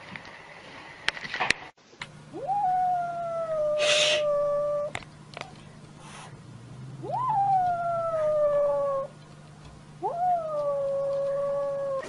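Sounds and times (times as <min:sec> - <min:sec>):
animal howling: 0:02.3 - 0:05.0, 0:06.8 - 0:09.2, 0:10.0 - 0:12.0.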